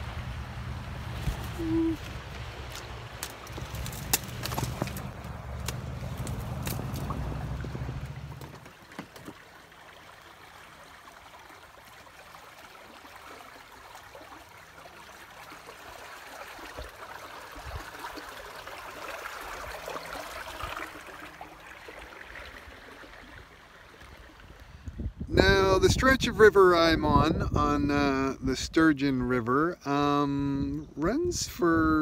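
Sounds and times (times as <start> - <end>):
flowing river water: 0.0 - 25.3.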